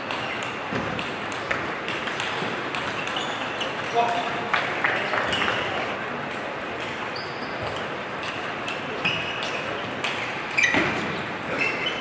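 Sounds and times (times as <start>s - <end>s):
table tennis ball pinging: 0.0s - 5.8s.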